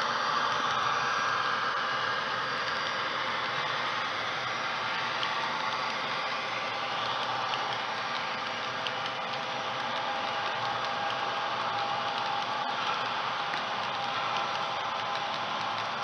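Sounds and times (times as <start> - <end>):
model train motor whirring: 0.0 - 16.0
faint clicks: 4.9 - 16.0.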